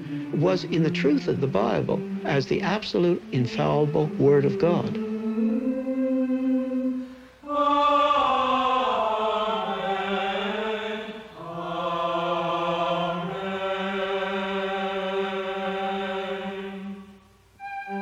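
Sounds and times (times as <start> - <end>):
person chanting slowly: 0.0 - 17.1
breaths: 6.9 - 7.5.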